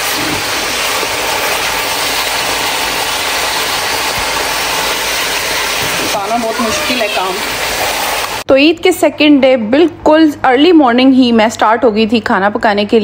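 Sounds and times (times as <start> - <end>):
meat sizzling in a pot: 0.0 - 8.5.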